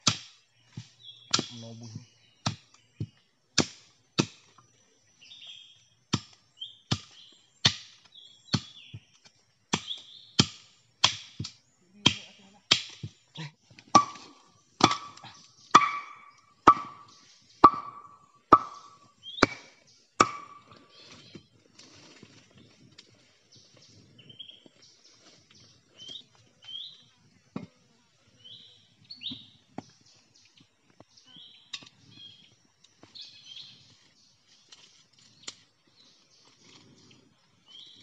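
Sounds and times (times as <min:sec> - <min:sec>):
machete chopping bamboo: 0:00.0 - 0:01.7, 0:02.4 - 0:04.6, 0:06.1 - 0:13.2, 0:13.8 - 0:20.8.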